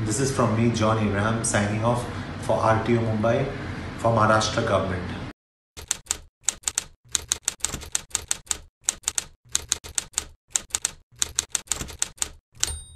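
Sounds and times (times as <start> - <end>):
typewriter key strikes: 5.8 - 12.9.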